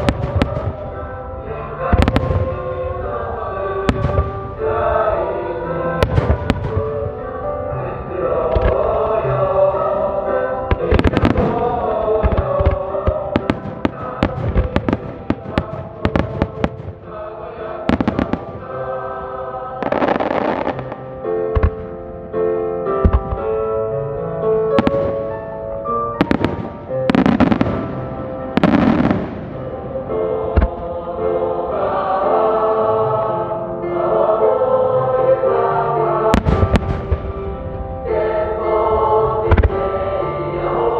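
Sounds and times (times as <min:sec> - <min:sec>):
fireworks bangs: 0:00.0 - 0:01.1, 0:01.9 - 0:02.7, 0:03.9 - 0:04.6, 0:06.0 - 0:07.2, 0:10.7 - 0:17.2, 0:17.8 - 0:18.9, 0:19.8 - 0:21.9, 0:24.7 - 0:25.6, 0:26.2 - 0:29.8, 0:36.3 - 0:37.9, 0:39.4 - 0:39.9
choir singing sustained chords: 0:00.0 - 0:40.9
music with long held notes: 0:00.0 - 0:40.9.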